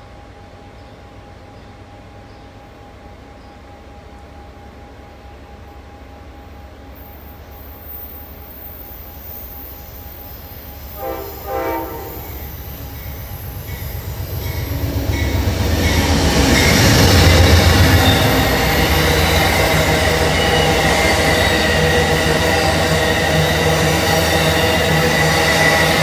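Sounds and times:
diesel locomotive passing: 0:00.0 - 0:26.0
train horn blasts: 0:10.9 - 0:12.8.

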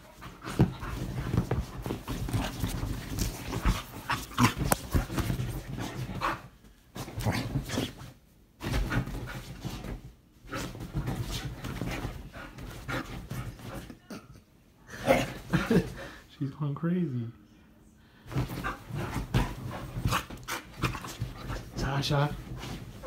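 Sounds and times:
bedding rustling: 0:00.0 - 0:14.0, 0:18.2 - 0:23.0.

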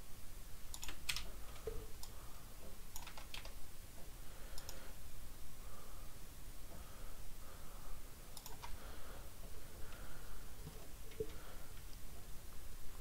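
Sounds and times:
computer keyboard keys clicking: 0:00.7 - 0:02.2, 0:02.9 - 0:03.6, 0:08.4 - 0:08.8.

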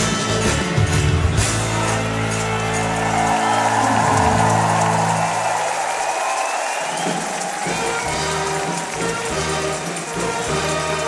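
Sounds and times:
lively music with bass line: 0:00.0 - 0:05.4.

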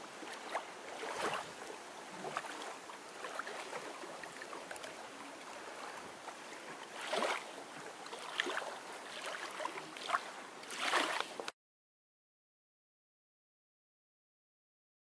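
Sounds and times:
water lapping on gravel shore: 0:00.0 - 0:11.5.

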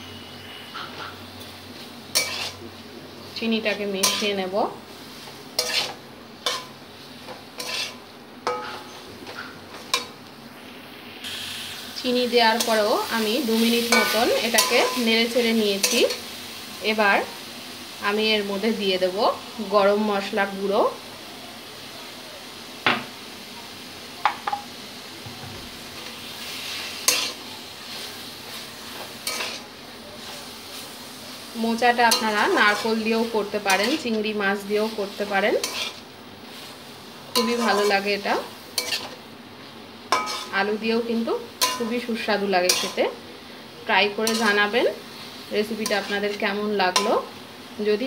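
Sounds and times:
low frying sizzle: 0:00.0 - 0:48.0
metal spatula scraping a wok: 0:02.1 - 0:02.6, 0:03.6 - 0:04.5, 0:05.1 - 0:10.2, 0:13.6 - 0:16.2, 0:26.4 - 0:30.9, 0:31.7 - 0:39.2, 0:40.1 - 0:40.8, 0:41.6 - 0:43.0, 0:44.2 - 0:47.3
spatula clinking on metal pan: 0:40.1 - 0:40.5.

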